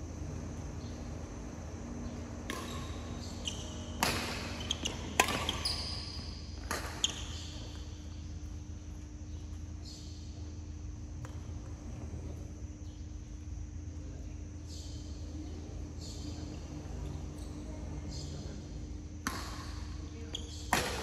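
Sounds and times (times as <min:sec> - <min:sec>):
rackets hitting shuttlecock: 0:02.0 - 0:07.9, 0:11.2 - 0:11.8, 0:19.2 - 0:20.0, 0:20.7 - 0:21.0
shoes squeaking on court floor: 0:02.0 - 0:10.6, 0:20.2 - 0:21.0.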